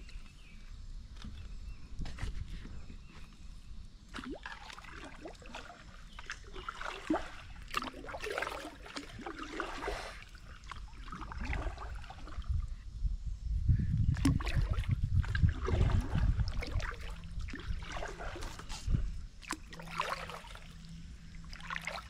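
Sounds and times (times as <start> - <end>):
kayak paddle splashing: 4.1 - 12.5, 14.2 - 22.0.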